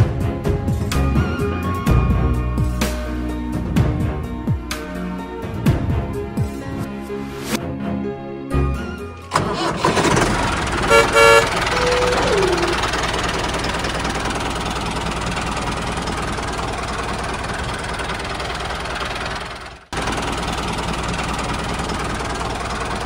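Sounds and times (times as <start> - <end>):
vehicle horn toots: 10.8 - 12.8.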